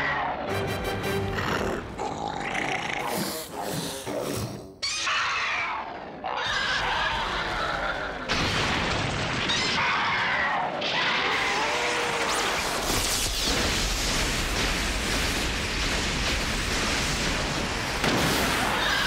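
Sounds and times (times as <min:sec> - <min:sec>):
monster roars: 0:01.2 - 0:08.3.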